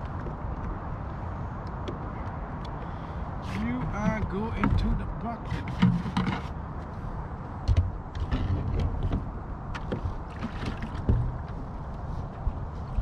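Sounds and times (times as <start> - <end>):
low thumps in kayak: 7.6 - 11.7.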